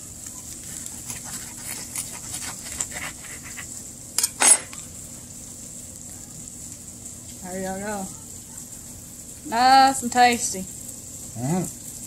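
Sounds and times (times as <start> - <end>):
knife cutting toasted sandwiches: 0.4 - 4.8
knife clattering on counter: 4.2 - 4.8.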